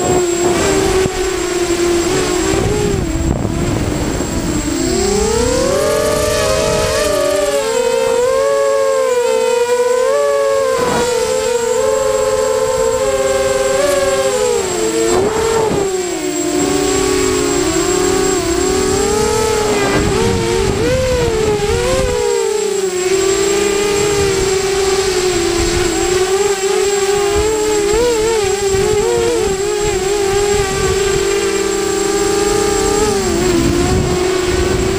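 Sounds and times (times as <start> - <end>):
drone motors whining: 0.0 - 34.9
wind rumble on microphone: 0.0 - 34.9.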